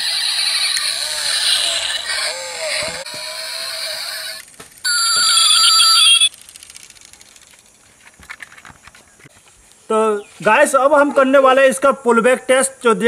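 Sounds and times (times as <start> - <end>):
electronic ringing tones: 4.9 - 6.3.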